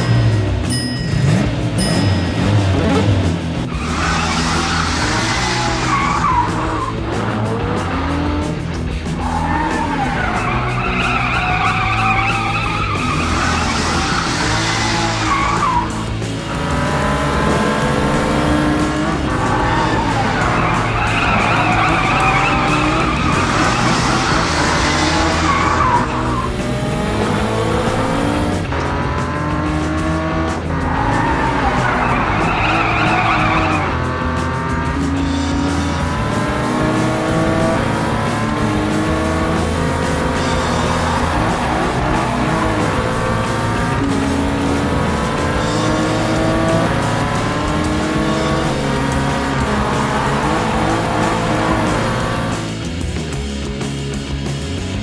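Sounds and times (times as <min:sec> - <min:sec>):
background music: 0:00.0 - 0:55.0
cartoon engines revving: 0:01.1 - 0:52.9
tyres squealing: 0:03.7 - 0:08.1, 0:09.2 - 0:16.2, 0:19.2 - 0:26.8, 0:30.8 - 0:34.1.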